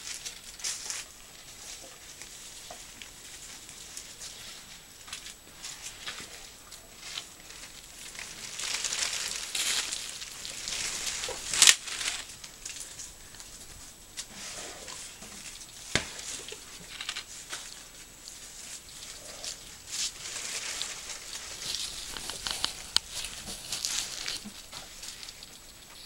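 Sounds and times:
dry vegetation rustling: 0:00.0 - 0:26.0.

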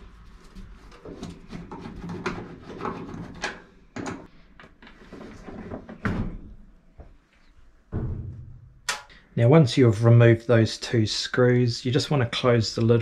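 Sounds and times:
rubbing and scraping on plastic: 0:00.0 - 0:03.7.

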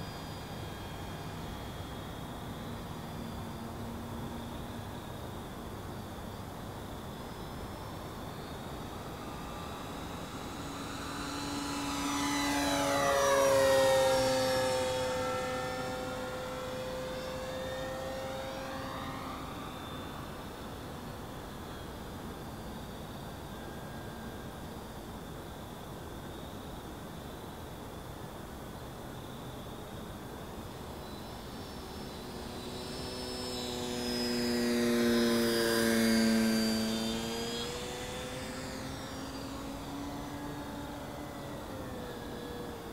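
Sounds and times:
model airplane motor whining: 0:00.0 - 0:21.9, 0:30.7 - 0:42.9.

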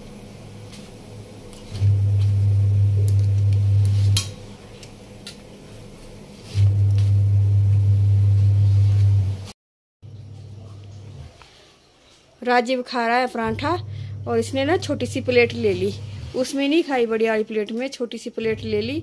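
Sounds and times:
loud low hum: 0:01.0 - 0:05.2, 0:06.6 - 0:09.5, 0:13.4 - 0:16.4, 0:18.4 - 0:19.0.

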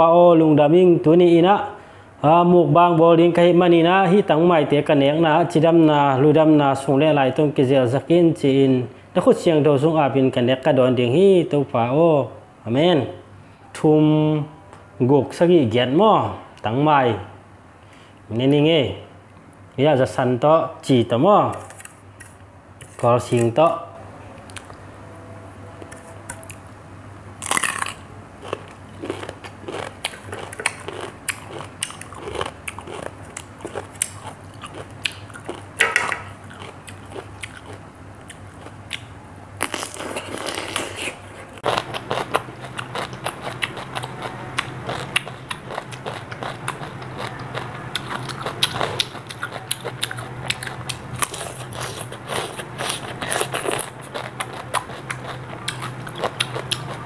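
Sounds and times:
wet crunching of chewing: 0:27.4 - 0:57.0.

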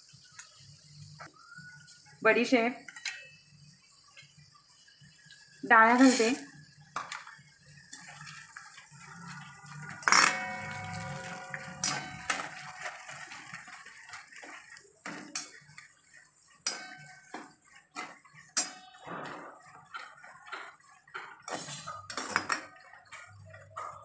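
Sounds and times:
metal pan clanging and ringing: 0:02.9 - 0:03.5, 0:09.1 - 0:13.7, 0:16.6 - 0:17.4, 0:18.5 - 0:24.0
steel spoon scraping a pan: 0:05.9 - 0:06.6, 0:07.9 - 0:24.0.

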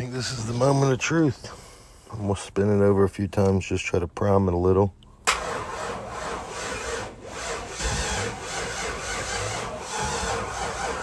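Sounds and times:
starter motor cranking engine: 0:05.3 - 0:11.0.

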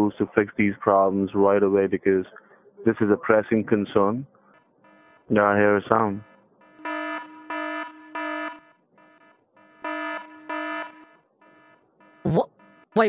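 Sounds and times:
buzzing alarm blasts: 0:06.2 - 0:13.0.

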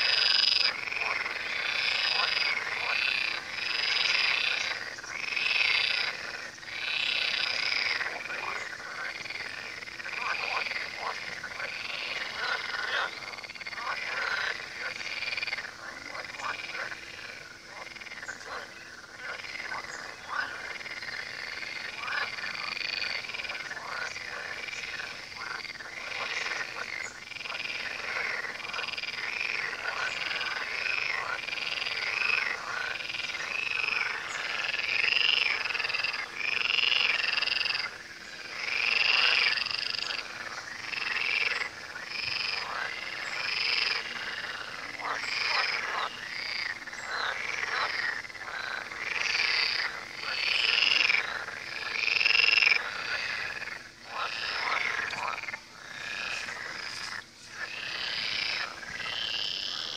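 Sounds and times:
frogs croaking: 0:00.0 - 0:59.9.

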